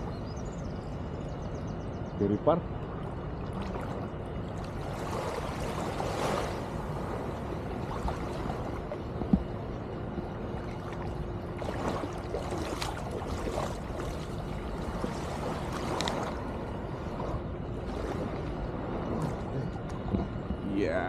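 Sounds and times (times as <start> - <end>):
water lapping at shoreline: 2.6 - 21.0.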